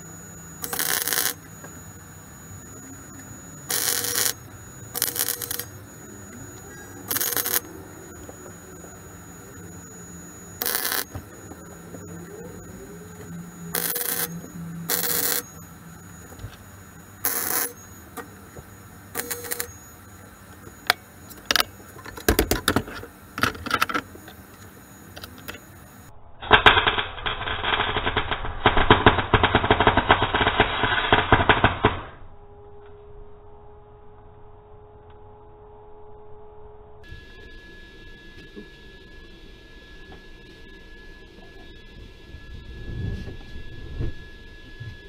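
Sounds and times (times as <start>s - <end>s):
welder crackling: 0.0s - 32.0s
muffled crackling weld run: 0.0s - 32.2s.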